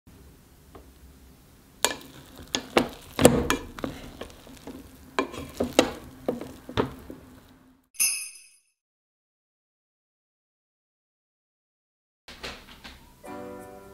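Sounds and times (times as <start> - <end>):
rice paddle scraping pot: 1.8 - 7.6.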